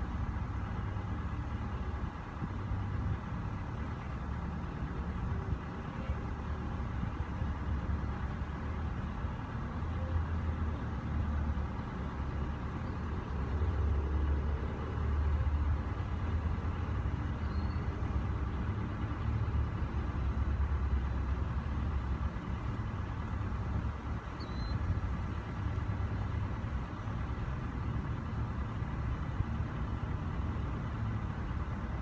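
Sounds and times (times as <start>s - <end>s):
faint short chirps: 24.4s - 24.8s.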